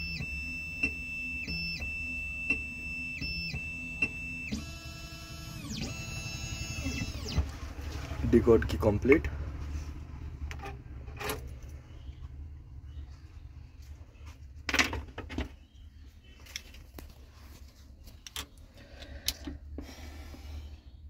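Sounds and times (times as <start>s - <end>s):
steady low hum: 0.0s - 14.7s.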